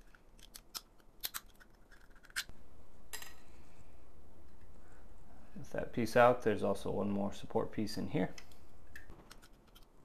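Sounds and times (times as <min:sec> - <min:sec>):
plastic piece cracking: 0:00.0 - 0:02.5
low background noise: 0:00.0 - 0:10.0.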